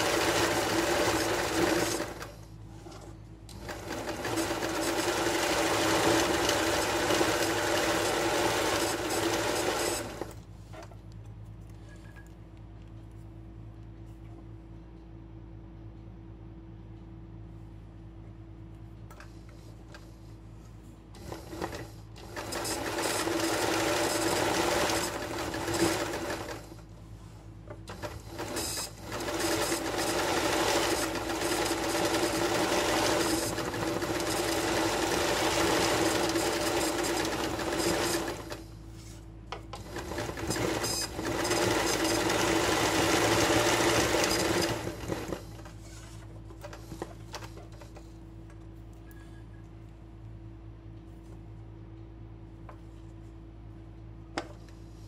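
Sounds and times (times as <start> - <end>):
sewing machine stitching: 0.0 - 10.4, 21.2 - 26.8, 27.9 - 38.7, 39.7 - 48.0.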